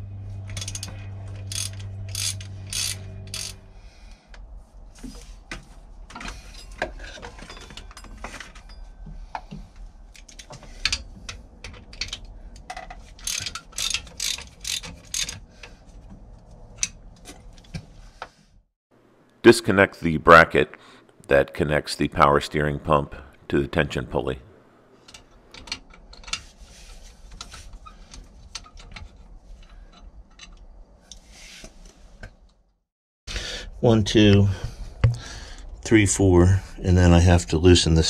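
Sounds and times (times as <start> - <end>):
steady low hum: 0.0 - 12.7
ratchet wrench clicking: 0.6 - 3.6, 13.2 - 15.4.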